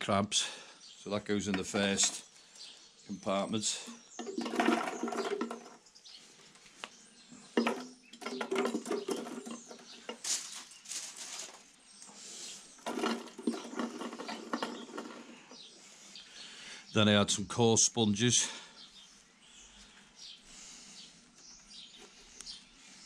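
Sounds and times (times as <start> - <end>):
plastic balls clattering on glass: 3.8 - 5.8, 7.5 - 10.6, 12.8 - 15.4.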